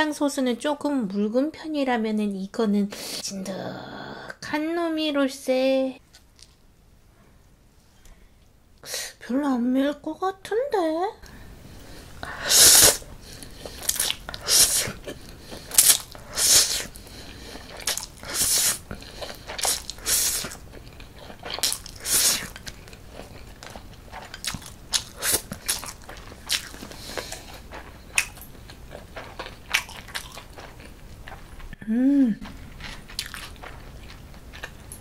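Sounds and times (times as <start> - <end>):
noodle slurping: 11.9 - 28.0
chewing smacks: 13.3 - 31.8, 32.4 - 35.0.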